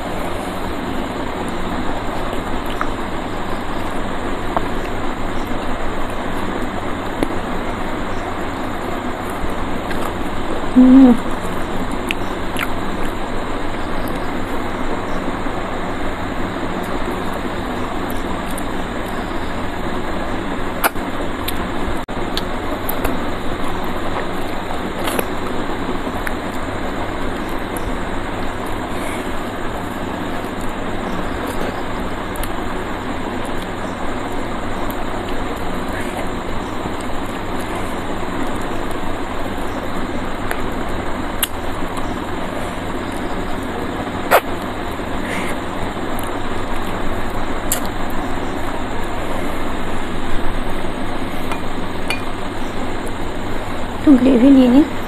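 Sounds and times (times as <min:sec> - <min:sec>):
eating by hand clicks: 0:12.0 - 0:13.2, 0:20.8 - 0:21.6, 0:41.4 - 0:42.2, 0:44.3 - 0:44.7, 0:47.6 - 0:48.2.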